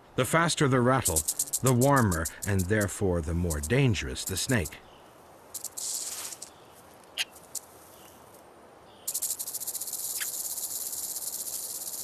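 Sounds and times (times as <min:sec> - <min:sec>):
high-pitched pulsing buzz: 0:01.0 - 0:04.8
rattlesnake rattle rasping: 0:01.0 - 0:04.8, 0:05.5 - 0:06.5, 0:09.1 - 0:12.0
sharp clicks: 0:01.0 - 0:04.8.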